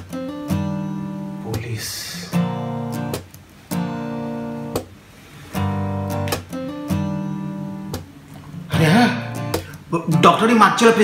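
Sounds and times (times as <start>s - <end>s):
guitar chords strummed: 0.0s - 11.0s.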